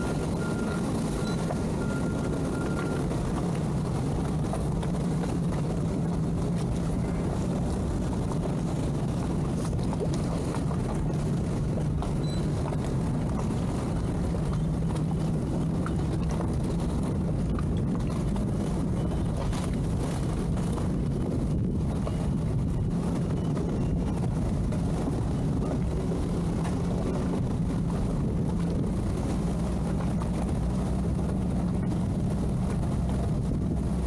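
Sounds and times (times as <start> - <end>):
outboard motors droning: 0.0 - 34.0
water wash: 0.0 - 34.0.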